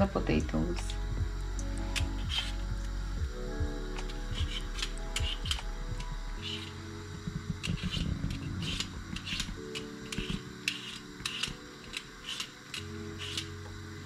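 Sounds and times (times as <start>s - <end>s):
soft background music: 0.0s - 14.0s
peeler scraping potato: 1.8s - 2.7s, 4.0s - 5.6s, 6.4s - 13.6s.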